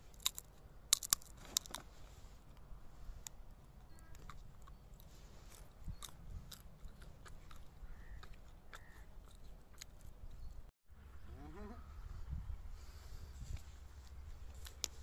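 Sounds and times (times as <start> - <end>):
plant stalks crackling and snapping: 0.0 - 1.9, 14.5 - 15.0.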